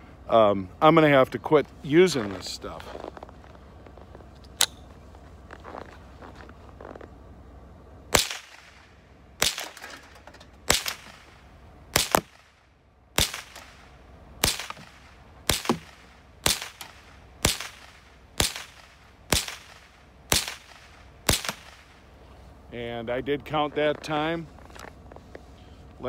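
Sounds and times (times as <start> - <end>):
rifle shots: 8.1 - 22.1.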